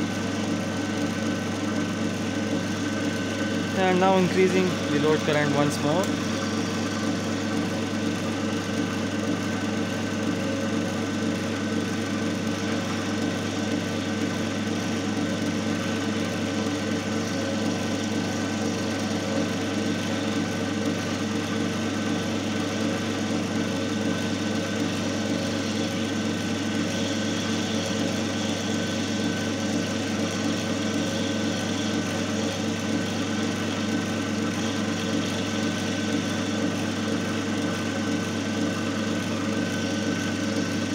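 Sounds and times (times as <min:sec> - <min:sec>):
electric motor humming: 0:00.0 - 0:40.9.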